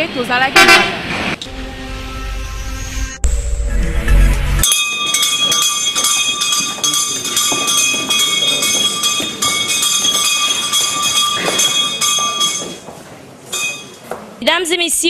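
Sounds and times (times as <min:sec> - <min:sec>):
bell ringing rapidly: 0:04.6 - 0:12.8, 0:13.5 - 0:14.0.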